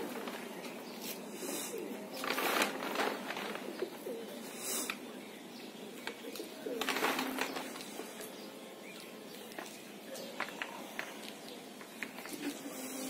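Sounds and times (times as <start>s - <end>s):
plastic tarp rustling: 0.0s - 1.4s, 2.0s - 4.2s, 6.7s - 8.4s
pigeons cooing: 0.0s - 8.6s.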